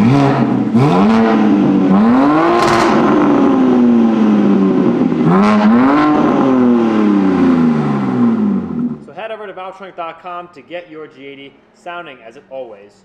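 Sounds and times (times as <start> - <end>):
car engine revving: 0.0 - 9.1.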